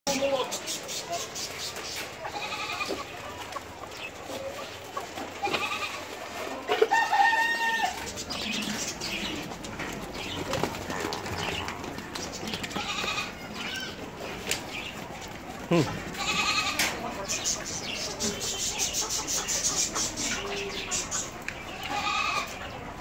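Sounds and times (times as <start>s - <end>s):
goats bleating: 2.2s - 3.3s, 5.3s - 8.0s, 12.6s - 14.0s, 15.6s - 17.1s, 21.7s - 22.6s
rooster crowing: 6.8s - 8.0s.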